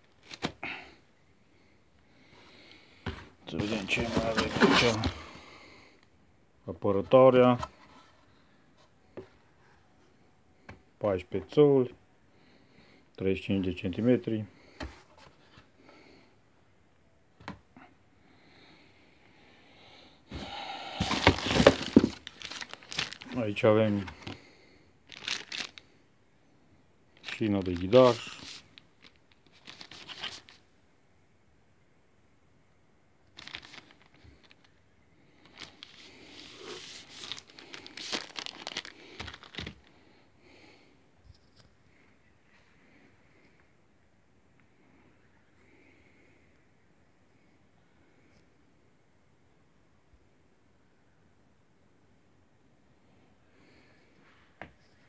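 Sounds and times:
cardboard and plastic rustling: 0.1s - 0.6s, 3.0s - 5.4s, 20.3s - 24.5s, 25.1s - 25.8s, 27.2s - 30.6s, 33.4s - 34.8s, 35.4s - 40.0s.

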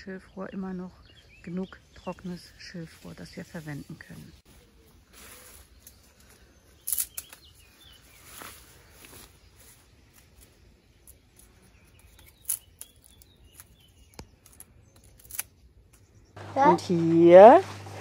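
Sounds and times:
dry reed stems rustling: 2.3s - 15.6s
pruning shears clicking: 6.8s - 7.5s, 11.0s - 16.0s.

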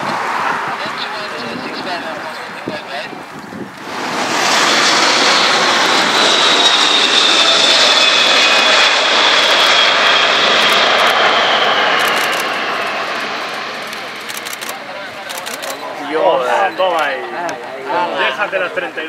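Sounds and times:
jet engines roaring: 0.0s - 17.3s, 18.0s - 19.0s.

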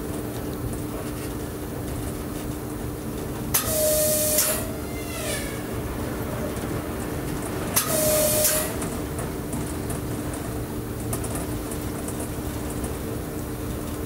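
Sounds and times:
electric train humming: 2.8s - 11.0s
train horn blast: 3.6s - 5.9s, 7.8s - 8.9s.

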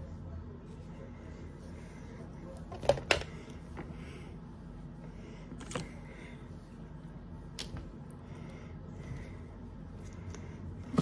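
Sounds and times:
faint room hum: 0.0s - 11.0s.

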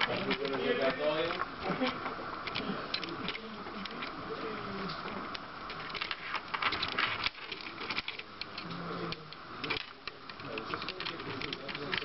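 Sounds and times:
toy motors ratcheting gear clatter: 5.8s - 12.0s.

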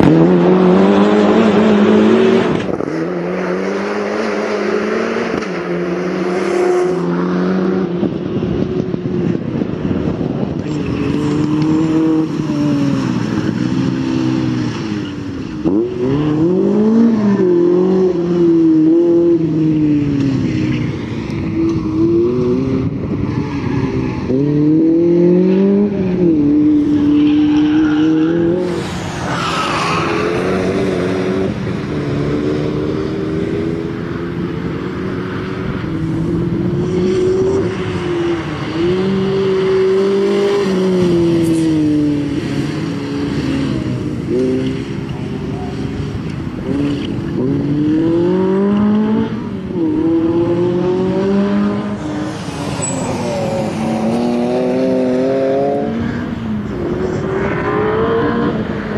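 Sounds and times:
car engine revving hard: 0.0s - 7.9s.

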